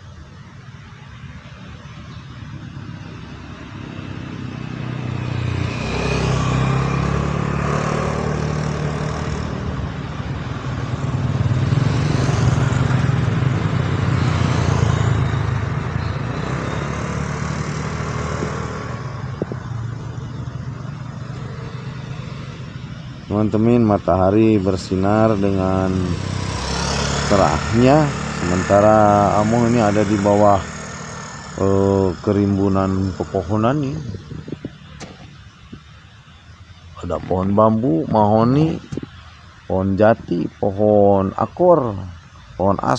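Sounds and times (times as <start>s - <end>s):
vehicle engines passing: 0.0s - 42.9s
motorcycle riding by: 3.0s - 34.8s.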